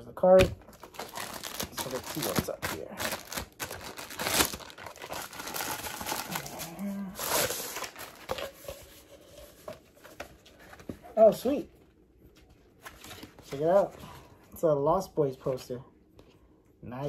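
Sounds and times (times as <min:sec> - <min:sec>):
paper rustling and crinkling: 0:00.6 - 0:11.6, 0:12.3 - 0:14.2.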